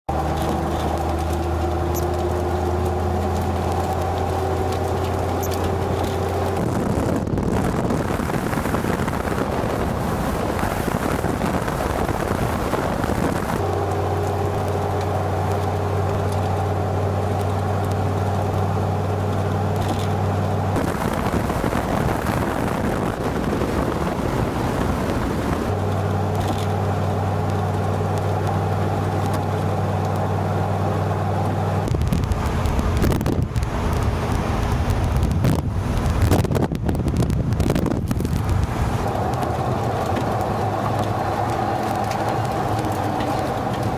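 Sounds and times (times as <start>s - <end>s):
truck driving with road noise: 0.0s - 43.9s
wind noise: 0.1s - 43.9s.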